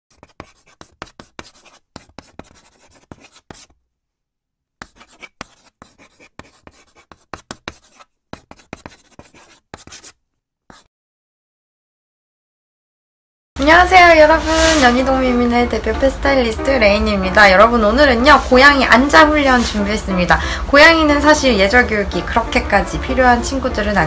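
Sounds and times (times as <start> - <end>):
pen strokes scratching: 0.1 - 3.8, 4.8 - 10.9.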